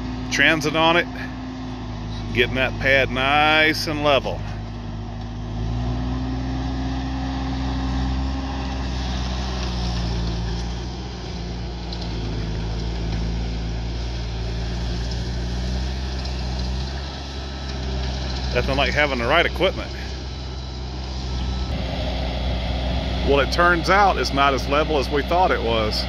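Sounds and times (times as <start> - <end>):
diesel engine running: 0.0 - 26.0
tracks working gravel: 0.0 - 26.0.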